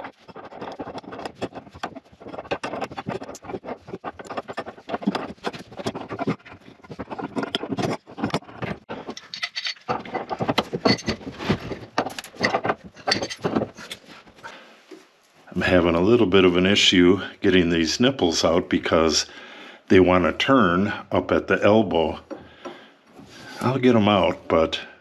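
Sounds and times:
metal tools clicking and scraping: 0:00.0 - 0:14.1.

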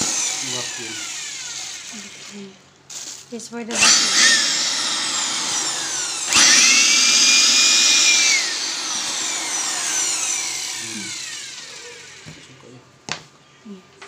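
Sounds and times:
electric blower motor whine: 0:00.0 - 0:02.5, 0:03.7 - 0:12.6.

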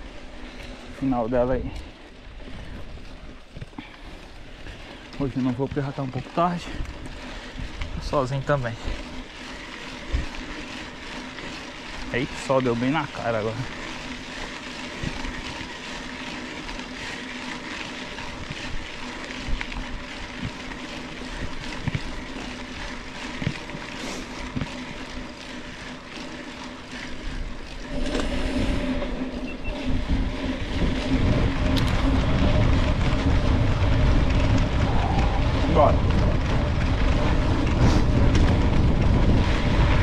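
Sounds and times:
bike tyre rumble on dirt: 0:00.0 - 0:40.0
wind on microphone: 0:27.8 - 0:40.0.

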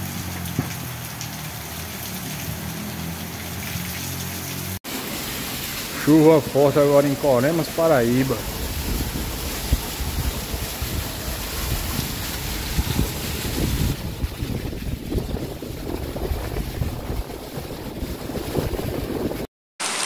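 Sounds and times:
heavy rain pouring: 0:00.0 - 0:20.0
wind buffeting microphone: 0:08.4 - 0:19.5.

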